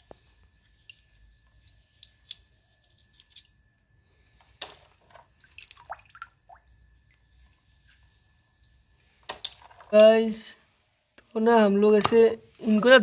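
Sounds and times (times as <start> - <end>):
water dripping and splashing in basin: 0.6 - 2.6, 4.6 - 7.2.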